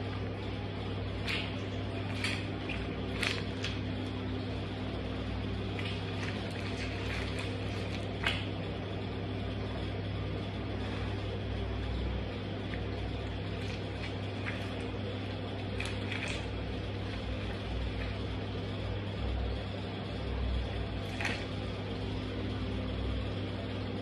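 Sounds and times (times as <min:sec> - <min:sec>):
low mechanical hum: 0:00.0 - 0:24.0
shoes squelching on wet pulp: 0:01.2 - 0:04.1, 0:05.6 - 0:08.6.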